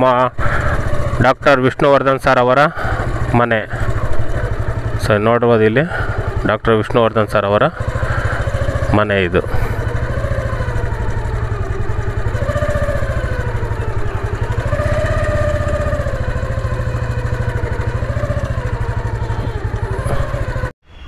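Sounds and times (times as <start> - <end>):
motorcycle engine running: 0.0 - 20.8.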